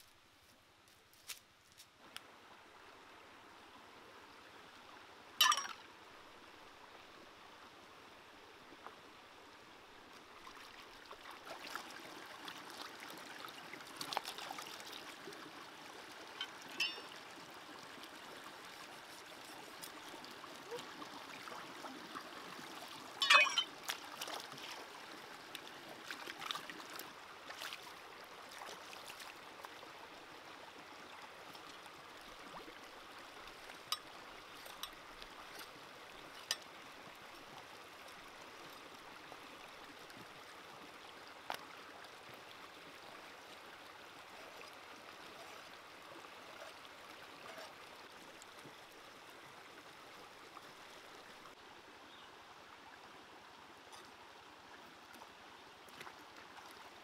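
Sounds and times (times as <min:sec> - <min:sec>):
stream running over rocks: 0:00.0 - 0:57.0
splashing in water: 0:23.2 - 0:24.8.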